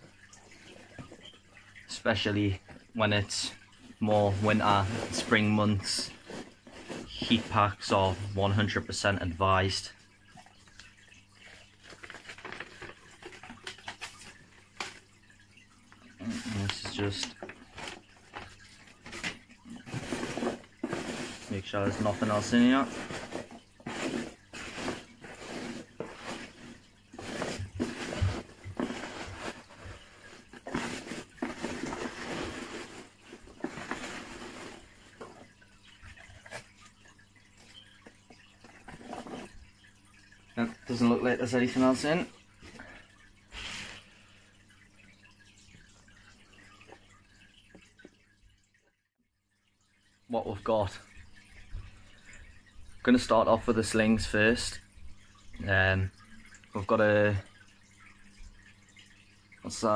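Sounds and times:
packaging rustling and crinkling: 0:11.8 - 0:15.0.

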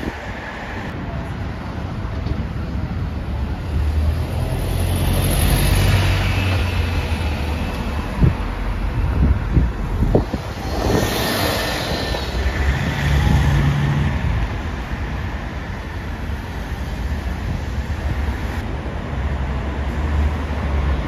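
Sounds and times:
bus engines running: 0:00.0 - 0:21.0
road traffic: 0:00.0 - 0:21.0
rushing hiss: 0:10.1 - 0:13.8.

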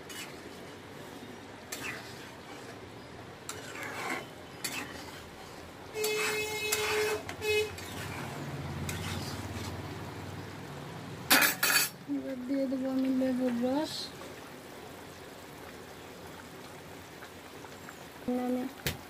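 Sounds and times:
metal spatula scraping pan: 0:00.0 - 0:00.5, 0:01.7 - 0:02.8, 0:03.4 - 0:09.8, 0:11.3 - 0:12.0.

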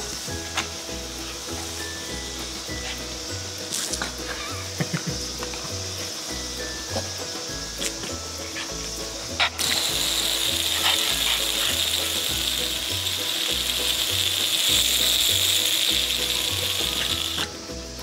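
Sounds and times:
background music: 0:00.0 - 0:18.0
fountain water jet hissing: 0:00.0 - 0:18.0.

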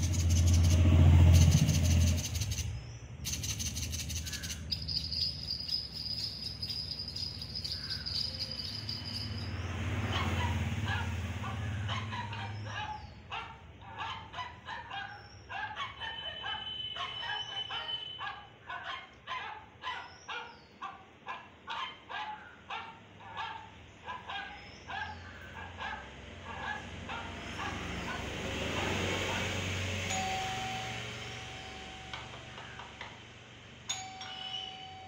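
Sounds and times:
dog barking: 0:06.3 - 0:29.7.

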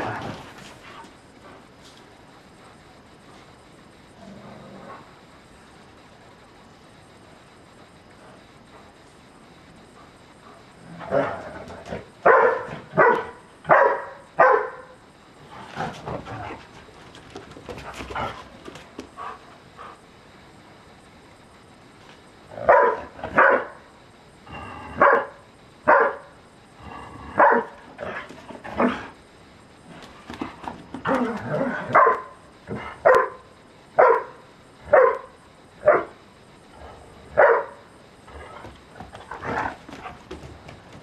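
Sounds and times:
dogs barking: 0:12.2 - 0:15.0, 0:22.7 - 0:23.8, 0:34.0 - 0:36.2, 0:37.4 - 0:37.8.

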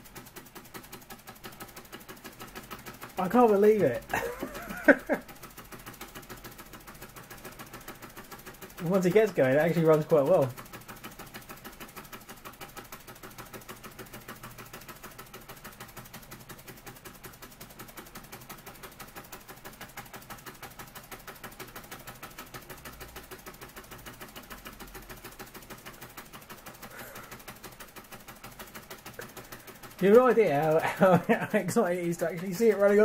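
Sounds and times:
model steam engine clicking: 0:00.0 - 0:33.0.

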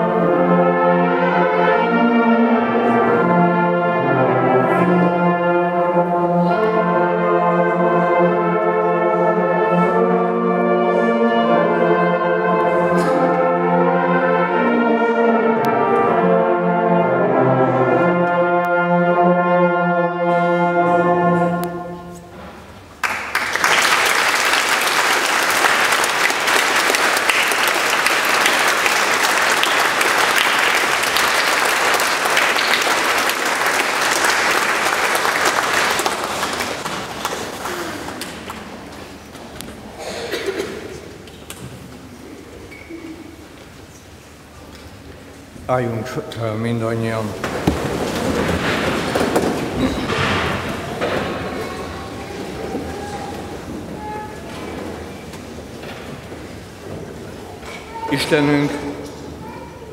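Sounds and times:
brass ensemble playing: 0:00.0 - 0:38.4
audience applause: 0:23.0 - 0:39.0.

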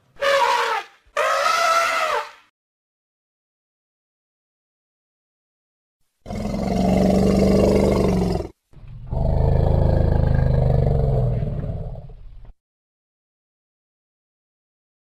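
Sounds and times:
elephant calling: 0:00.2 - 0:02.4.

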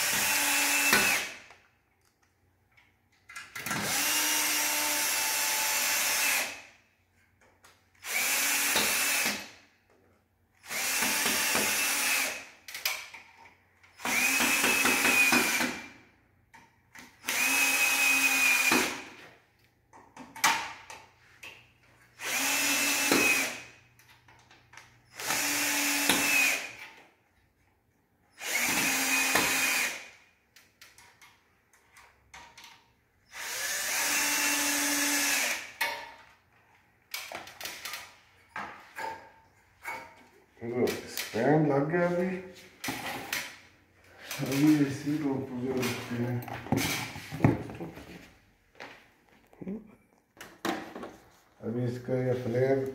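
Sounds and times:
cordless drill driving screws: 0:00.0 - 0:01.6, 0:03.6 - 0:06.7, 0:08.0 - 0:09.6, 0:10.6 - 0:12.9, 0:13.8 - 0:16.0, 0:17.0 - 0:19.1, 0:22.2 - 0:23.8, 0:25.1 - 0:27.0, 0:28.3 - 0:30.2, 0:33.2 - 0:35.9.

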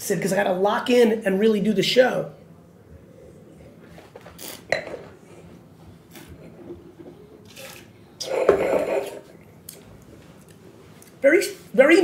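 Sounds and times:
mouth sounds from tasting: 0:04.3 - 0:04.8.

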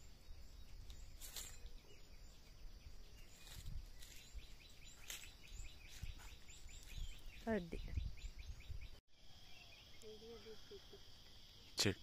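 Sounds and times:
faint bird chirps: 0:00.0 - 0:12.0
insect hum: 0:00.0 - 0:12.0
rustles in dry leaves: 0:01.1 - 0:01.9, 0:03.2 - 0:07.4.

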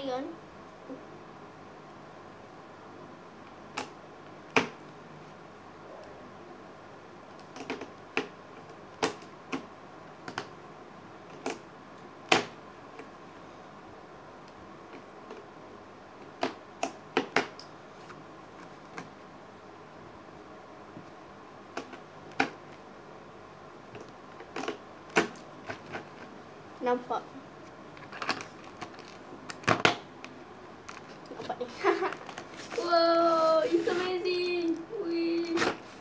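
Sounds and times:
crayons clicking on plastic case: 0:07.3 - 0:10.5, 0:23.9 - 0:26.3.

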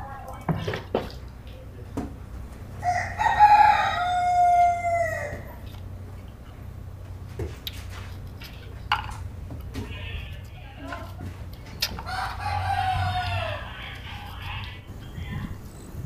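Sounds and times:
rooster crowing: 0:02.8 - 0:05.6, 0:12.0 - 0:13.9.

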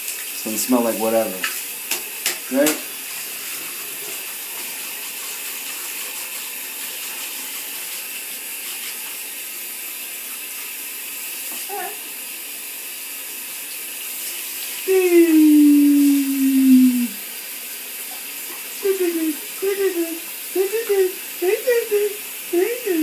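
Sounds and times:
shower water spraying into tub: 0:00.0 - 0:23.0
brief voice sound: 0:14.9 - 0:17.2
long voice sound falling in pitch: 0:14.9 - 0:17.2.

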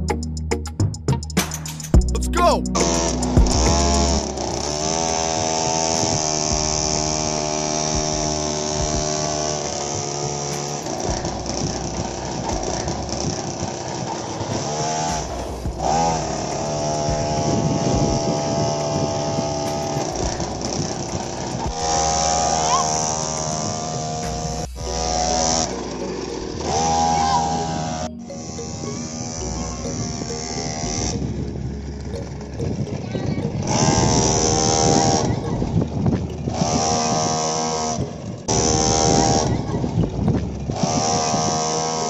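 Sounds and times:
motor whine under load: 0:02.8 - 0:42.0.

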